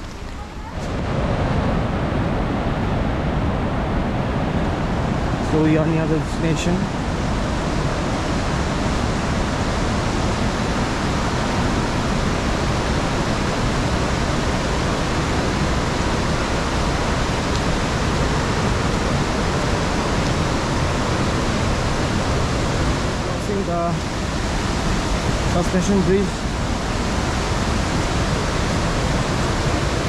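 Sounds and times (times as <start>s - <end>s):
stream water rushing: 0.0s - 30.0s.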